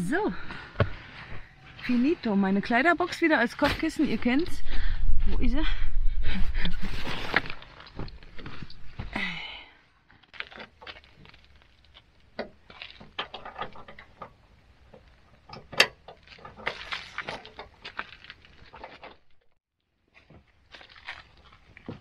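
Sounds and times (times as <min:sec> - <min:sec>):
rustling and shuffling gear: 0:06.4 - 0:09.2, 0:16.0 - 0:22.0.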